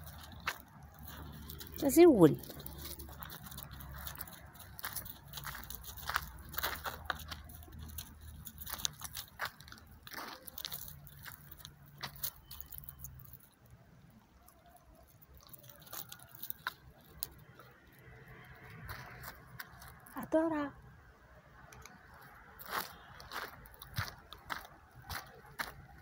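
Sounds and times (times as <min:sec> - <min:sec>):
dog crunching and chewing food: 0:00.0 - 0:13.6, 0:14.5 - 0:20.1.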